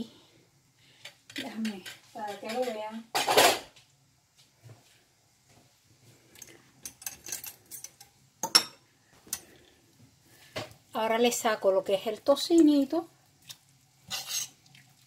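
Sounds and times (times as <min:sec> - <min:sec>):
cookware clattering: 0:01.6 - 0:03.7, 0:06.8 - 0:09.5, 0:14.1 - 0:14.6
metal utensils clinking: 0:06.4 - 0:09.5.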